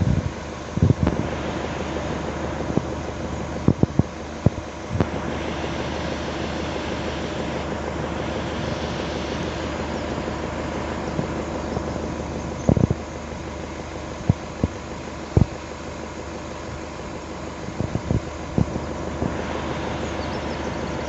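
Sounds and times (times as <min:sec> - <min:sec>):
wind on microphone: 0:00.0 - 0:01.4, 0:03.6 - 0:05.5, 0:12.6 - 0:13.0, 0:17.6 - 0:20.4
low hum: 0:00.0 - 0:21.0.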